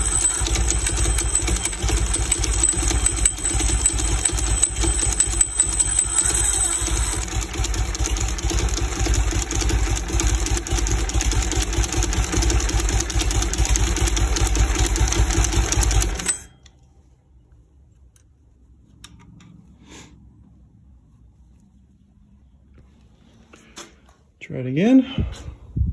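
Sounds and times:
engine cranking on electric starter: 0.0 - 16.5.

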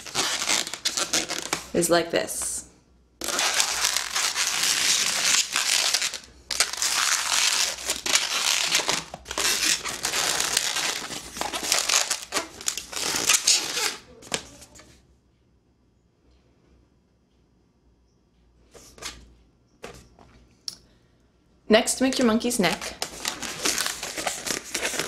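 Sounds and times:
balloon rubbing and squeaking: 0.0 - 1.8, 3.2 - 14.1.

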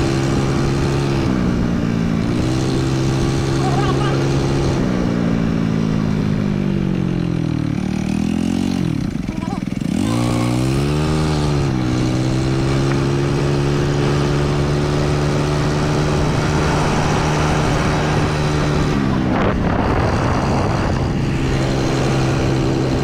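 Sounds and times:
small vehicle engine: 0.0 - 23.0.

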